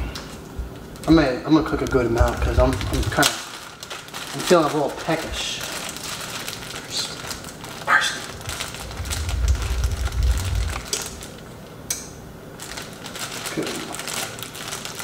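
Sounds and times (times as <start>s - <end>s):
low rumble of handling noise: 0.0s - 4.6s, 6.0s - 11.8s
plastic bag crinkling and rustling: 0.8s - 11.5s, 12.6s - 15.0s.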